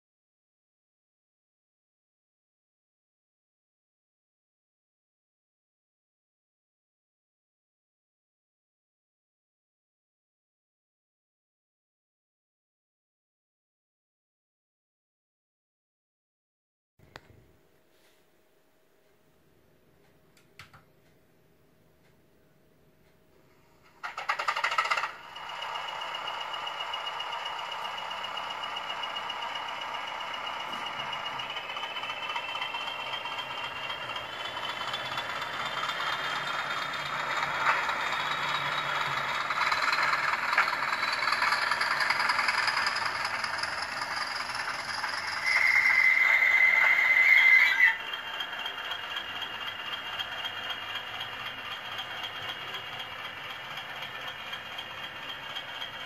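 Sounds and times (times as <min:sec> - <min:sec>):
recorded diesel engine through small speaker: 0:23.9 - 0:56.0.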